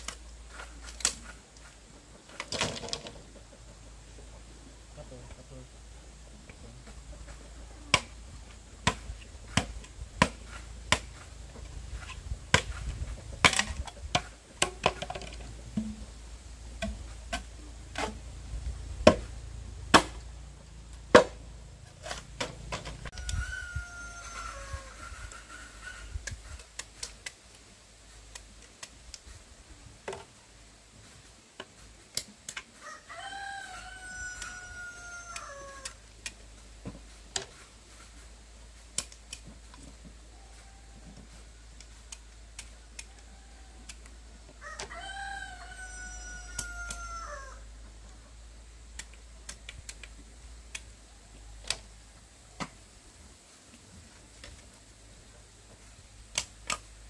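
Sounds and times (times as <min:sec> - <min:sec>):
rooster crowing: 0:23.0 - 0:26.1, 0:32.8 - 0:36.0, 0:40.3 - 0:41.4, 0:43.1 - 0:47.7.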